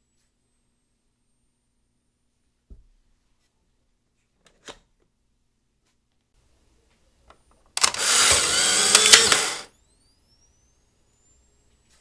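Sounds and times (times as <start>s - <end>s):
camera shutter click: 7.8s - 9.7s
camera motor whirring: 7.8s - 11.8s
rising electronic tones: 8.0s - 12.0s.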